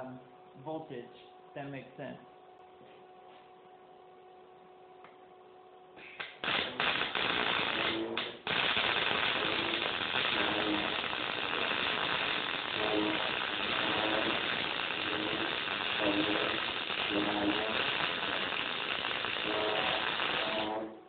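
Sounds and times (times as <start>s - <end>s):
welding arc: 6.2s - 21.0s.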